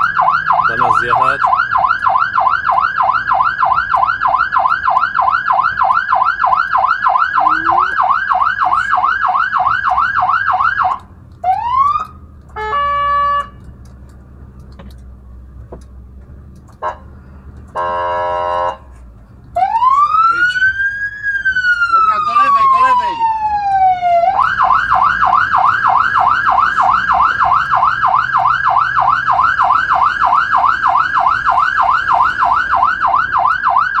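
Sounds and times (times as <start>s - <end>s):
fire engine siren: 0.0s - 13.7s, 16.8s - 34.0s
engine low rumble: 0.0s - 34.0s
horn blasts: 12.6s - 13.6s, 17.7s - 18.9s.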